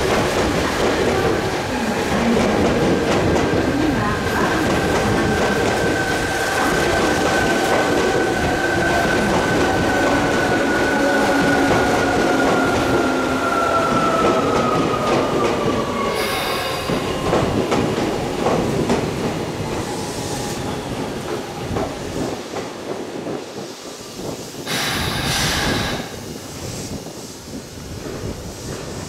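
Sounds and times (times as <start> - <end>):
short burst of hiss: 24.6 - 27.6.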